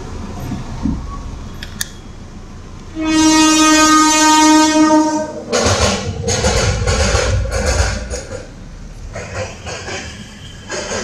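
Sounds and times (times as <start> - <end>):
street traffic rumble: 0.0 - 11.0
vehicle horn blast: 2.9 - 5.5.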